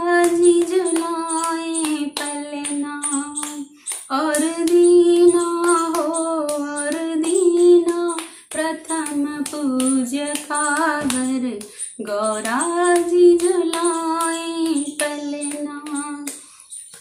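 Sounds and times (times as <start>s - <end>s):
woman singing devotional song: 0.0s - 16.8s
hand claps: 0.0s - 17.0s
breaths: 3.7s - 4.1s, 8.2s - 8.5s, 11.6s - 12.0s, 16.4s - 16.9s.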